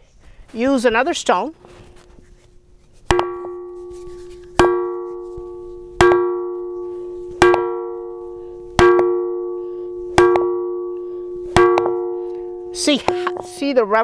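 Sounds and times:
stone striking ringing rock: 3.1 - 14.0.

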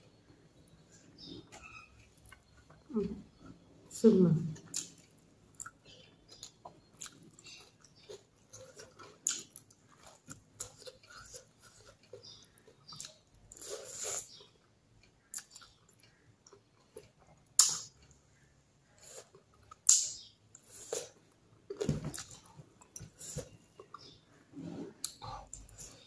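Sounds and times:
person chewing: 4.6 - 18.2.

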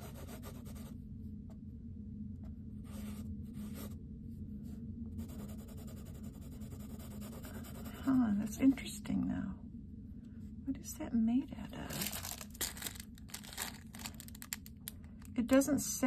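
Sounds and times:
pencil scratching on paper: 0.0 - 0.9, 5.2 - 8.9.

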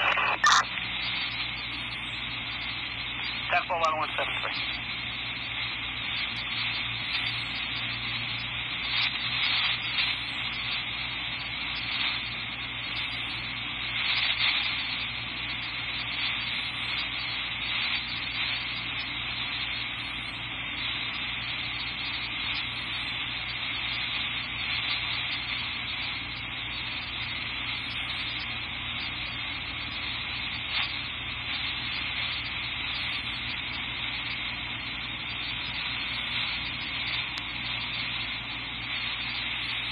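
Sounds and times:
radio scanner hiss: 0.0 - 39.9.

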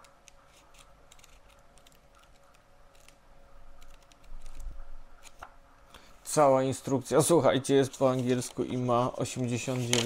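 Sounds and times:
paper pages flipping: 0.2 - 3.2, 3.8 - 5.5, 7.9 - 10.0.

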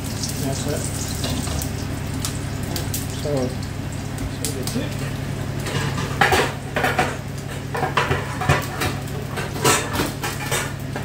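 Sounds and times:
metal utensils clattering in wok: 5.7 - 10.8.

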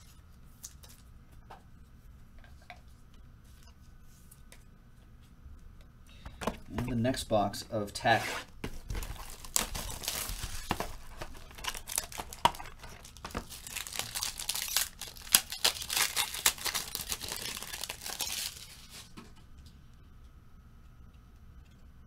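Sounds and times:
packaging being torn and crumpled: 8.8 - 19.1.

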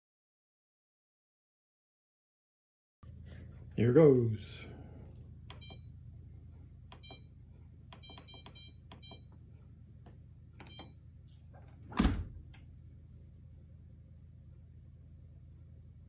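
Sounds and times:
dishwasher panel beeping: 6.9 - 7.2, 8.0 - 9.2, 10.6 - 10.9
dishwasher door thud: 11.9 - 12.4.

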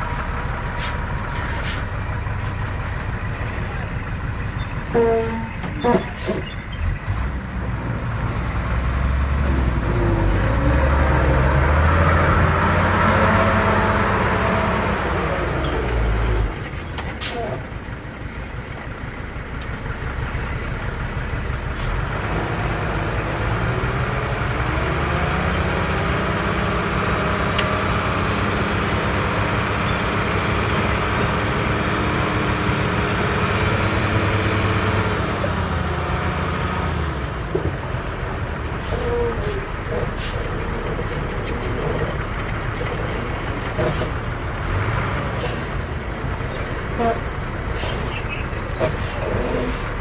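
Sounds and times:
diesel engine revving: 0.0 - 18.3, 18.9 - 50.0.

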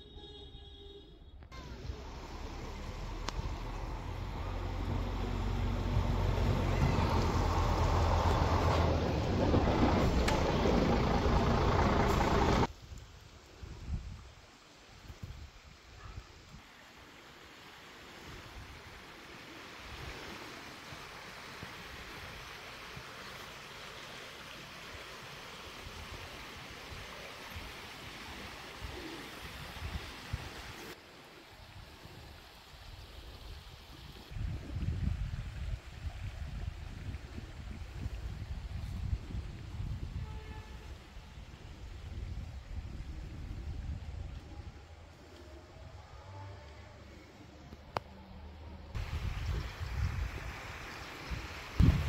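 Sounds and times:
vehicle engine running: 1.6 - 12.7
running water rushing: 1.6 - 13.6, 16.6 - 39.1
wind buffeting microphone: 34.3 - 40.3, 51.8 - 52.0.

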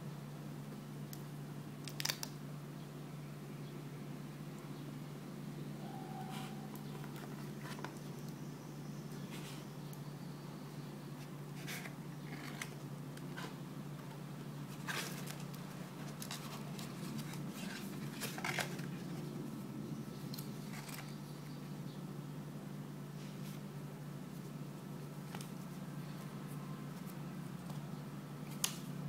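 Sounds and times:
paper rustling: 14.6 - 19.2.

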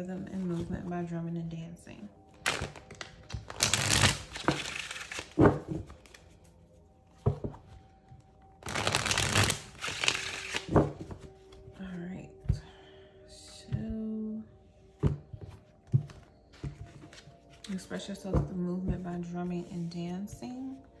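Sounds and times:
cards being shuffled: 2.4 - 6.2, 8.6 - 11.6.

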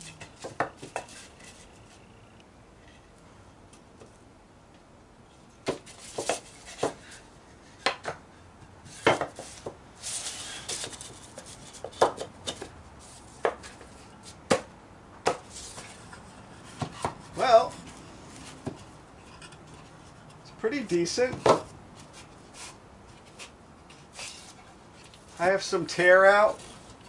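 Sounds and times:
wooden boards knocking: 9.0 - 9.8, 11.8 - 12.7, 14.5 - 15.4, 21.3 - 21.7.

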